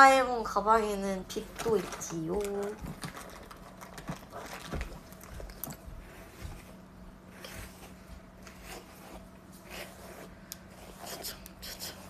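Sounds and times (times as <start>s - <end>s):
faint steady hum: 0.0s - 12.0s
rustling of bag: 1.4s - 6.6s
hairbrush through long hair: 6.0s - 12.0s.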